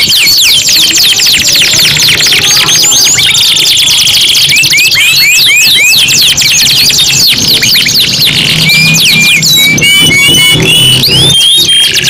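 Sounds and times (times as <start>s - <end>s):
canaries singing trills: 0.0s - 12.0s.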